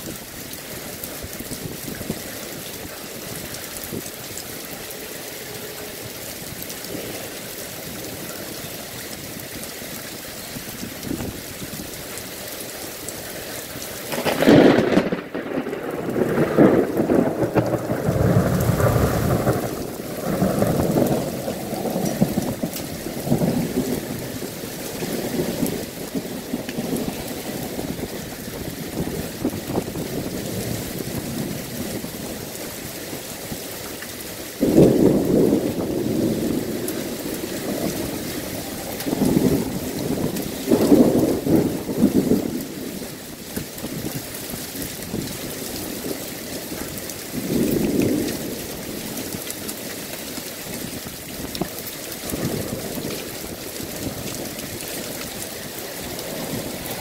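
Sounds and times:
heavy rain falling: 0.0 - 57.0
thunder rumbling: 14.0 - 57.0.

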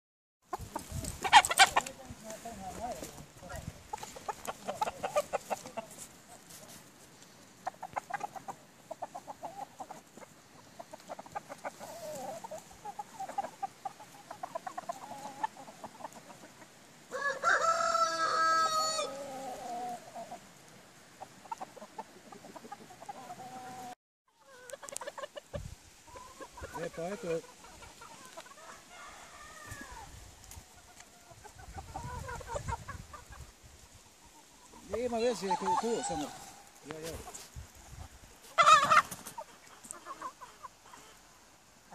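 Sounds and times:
chickens clucking: 0.5 - 41.9
rooster crowing loudly: 17.1 - 19.5, 28.6 - 30.1, 35.4 - 36.7.

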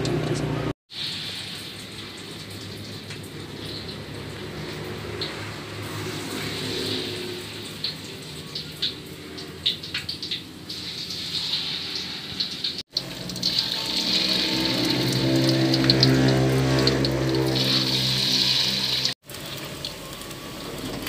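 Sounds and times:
deep-frying oil sizzling: 0.9 - 21.0.

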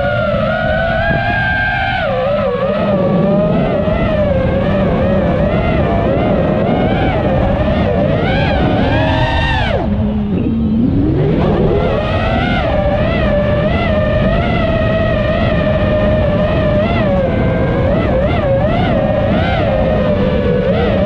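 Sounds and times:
drone motors whining: 0.0 - 21.0
low wind rumble: 0.0 - 21.0.

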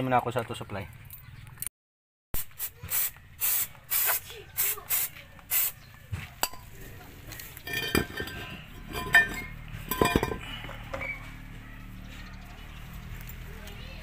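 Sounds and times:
aerosol spray hissing: 2.4 - 5.8
metallic clinks and knocks: 6.4 - 6.8, 7.6 - 10.6.

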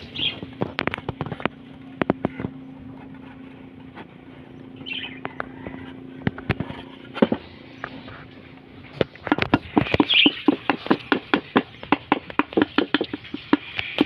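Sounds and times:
steady low hum: 0.0 - 14.0
wooden knocks and taps on concrete: 9.0 - 14.0.

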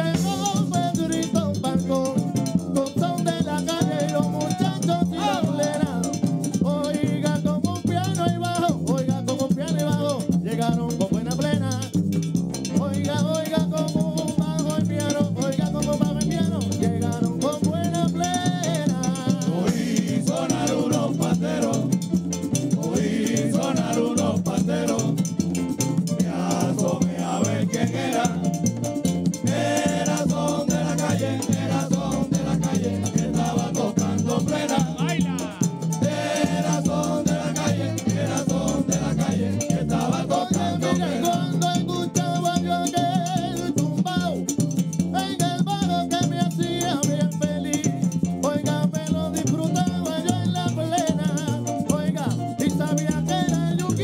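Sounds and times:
voices singing: 0.0 - 7.2, 19.1 - 28.8, 29.4 - 41.9
hand drums beating rhythm: 0.0 - 54.0
guiro scraping: 19.6 - 41.1.

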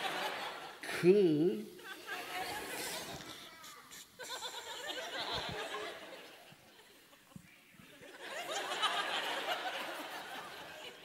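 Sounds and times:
audience laughing: 0.0 - 0.9, 4.1 - 7.4, 8.0 - 11.0.

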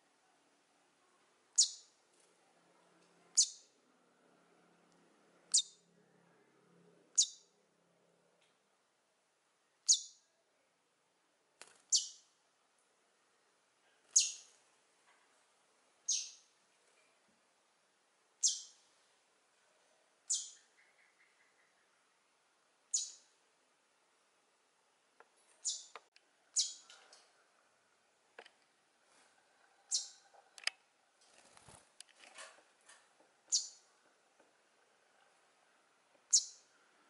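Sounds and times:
short high bird chirps: 1.6 - 1.9, 9.9 - 10.2, 14.2 - 14.5, 16.1 - 16.4, 18.4 - 18.8, 20.3 - 21.5, 22.9 - 23.2, 25.6 - 25.9, 26.6 - 26.9, 33.5 - 33.8.

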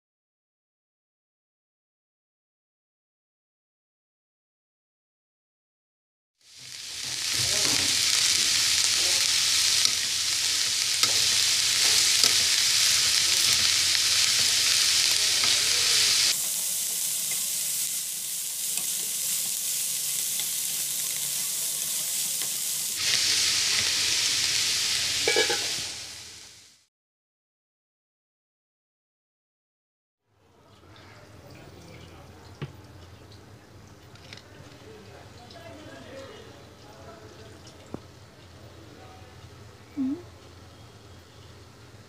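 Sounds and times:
food sizzling in hot oil: 6.4 - 26.9
spatula scraping pan: 7.0 - 16.4, 25.2 - 25.8.

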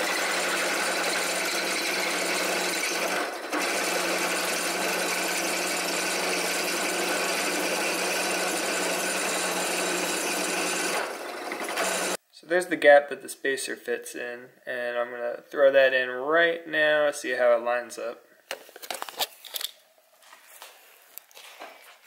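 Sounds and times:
drill press boring through metal: 0.0 - 12.2.

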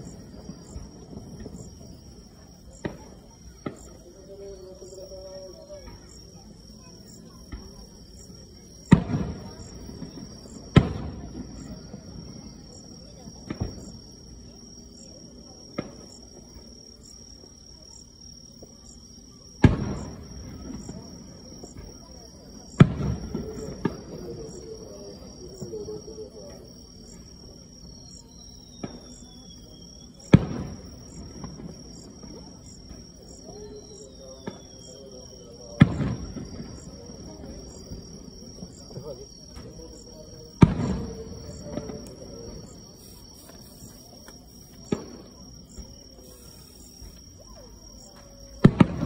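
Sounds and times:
faint firework pops: 0.0 - 4.0, 7.3 - 14.2, 15.7 - 16.8, 19.6 - 24.6, 28.6 - 35.0, 35.8 - 49.0
firework booms with echo: 0.0 - 4.0, 7.4 - 14.2, 15.7 - 16.4, 19.6 - 25.8, 28.7 - 43.0, 44.7 - 45.9, 48.6 - 49.0
insects chirping: 0.0 - 49.0.

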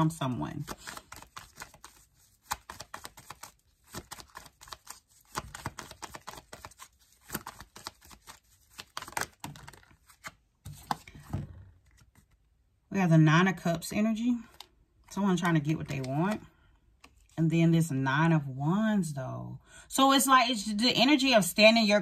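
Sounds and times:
cards being shuffled: 0.5 - 12.5, 14.4 - 17.4.

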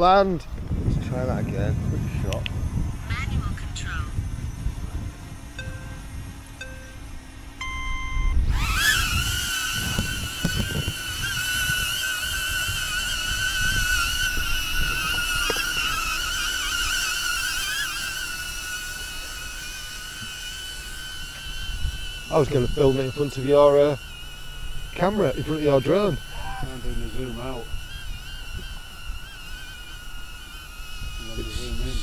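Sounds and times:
wind on microphone: 0.0 - 18.3, 21.0 - 32.0
drone propellers whining: 0.0 - 32.0
short electronic beep: 5.6 - 6.0, 6.6 - 7.0, 7.6 - 8.4.

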